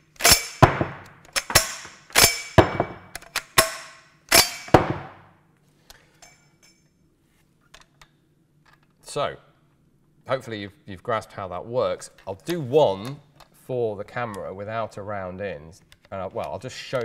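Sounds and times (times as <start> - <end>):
gun action metallic clacks: 0.2 - 5.2.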